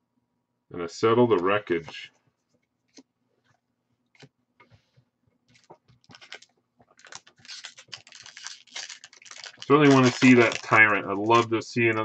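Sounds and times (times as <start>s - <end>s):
foil wrapper crinkling: 5.5s - 12.0s.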